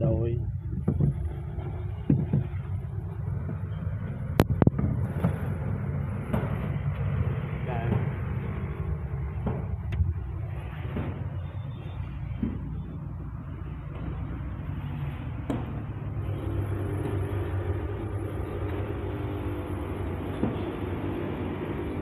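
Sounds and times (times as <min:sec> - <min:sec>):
vehicle rumbling: 0:00.0 - 0:22.0
faint hum: 0:16.1 - 0:22.0.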